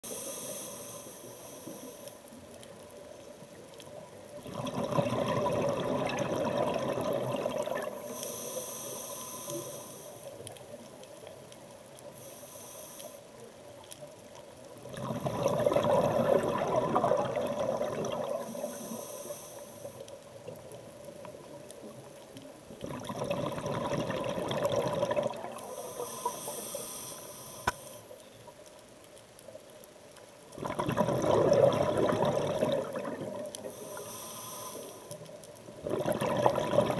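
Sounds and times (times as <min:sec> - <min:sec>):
regulator hissing on inhalation: 0:00.1 - 0:02.2, 0:08.0 - 0:10.4, 0:12.2 - 0:13.4, 0:18.5 - 0:20.0, 0:25.6 - 0:28.1, 0:33.6 - 0:35.2
bubbling exhalations underwater: 0:04.4 - 0:08.0, 0:14.9 - 0:18.5, 0:22.8 - 0:25.6, 0:30.6 - 0:33.5, 0:35.8 - 0:36.9.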